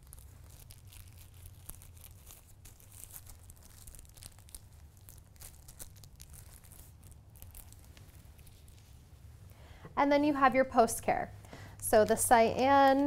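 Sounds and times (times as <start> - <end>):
plastic sleeve crinkling: 0.0 - 9.6.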